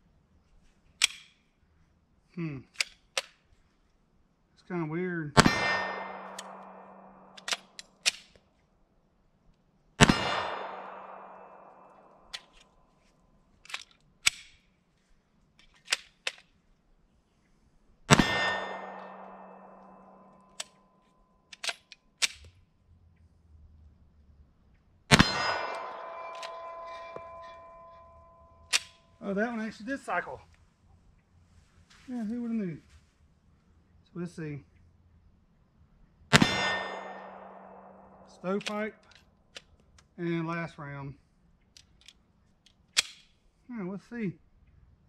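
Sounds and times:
metallic pistol clicks: 0:01.0 - 0:01.4, 0:02.7 - 0:03.4, 0:05.4 - 0:08.4, 0:10.0 - 0:12.8, 0:13.6 - 0:14.7, 0:15.6 - 0:16.6, 0:18.1 - 0:20.9, 0:21.5 - 0:22.6, 0:25.1 - 0:29.1, 0:36.3 - 0:40.1, 0:41.7 - 0:43.4
pistol shots echoing: 0:05.4 - 0:07.9, 0:10.0 - 0:12.5, 0:18.1 - 0:20.7, 0:25.1 - 0:29.0, 0:36.3 - 0:39.0.

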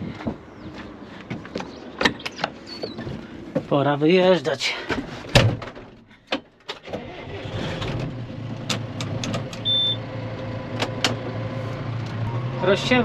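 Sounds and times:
short high beep: 0:09.6 - 0:10.0.

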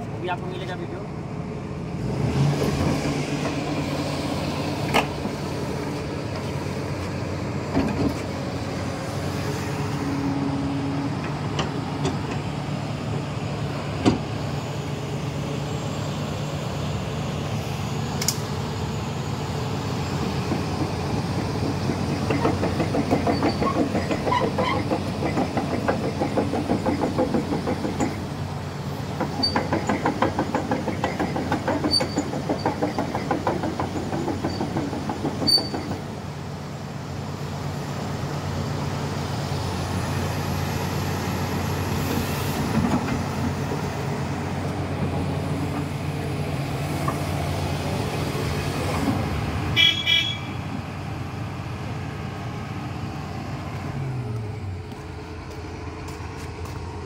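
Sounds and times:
excavator diesel engine running: 0:00.0 - 0:57.0
steel crawler tracks clattering: 0:02.1 - 0:14.9, 0:17.5 - 0:36.9, 0:39.9 - 0:50.9.

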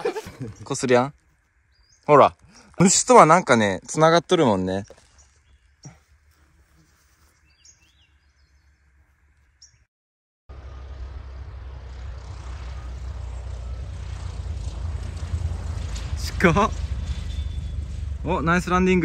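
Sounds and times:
faint bird chirps: 0:06.7 - 0:08.9
light plane engine and propeller: 0:10.5 - 0:19.0.

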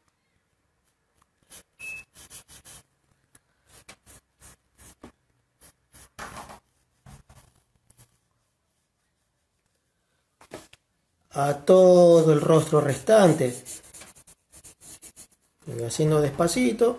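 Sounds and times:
pencil scratching on paper: 0:01.4 - 0:02.9, 0:03.6 - 0:09.8, 0:12.1 - 0:15.6.

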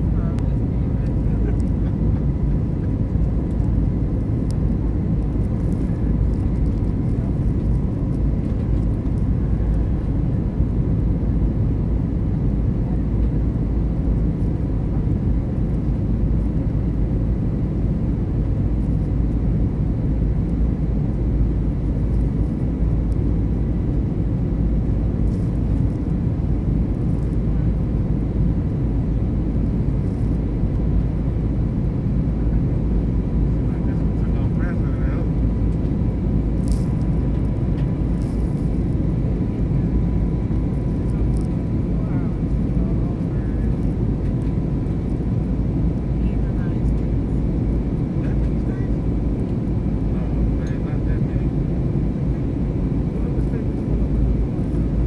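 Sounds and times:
jet cabin engine rumble: 0:00.0 - 0:55.0.

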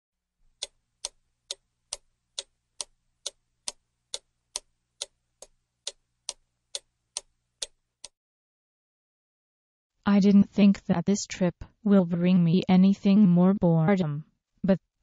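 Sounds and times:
clock ticking: 0:00.6 - 0:05.2.

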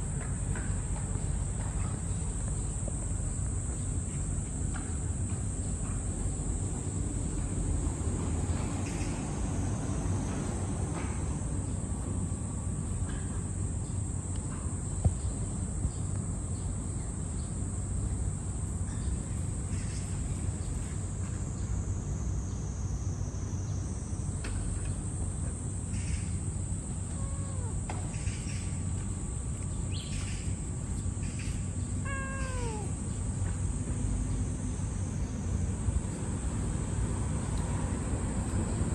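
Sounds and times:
insects droning: 0:00.0 - 0:38.9
short falling calls: 0:32.0 - 0:33.0.

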